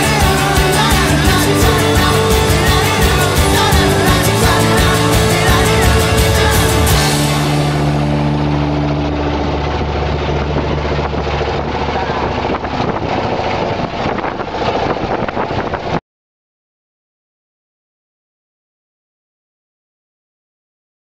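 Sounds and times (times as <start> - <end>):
music: 0.0 - 11.3
boat engine running: 0.0 - 16.0
water noise: 0.0 - 16.0
wind: 7.4 - 16.0.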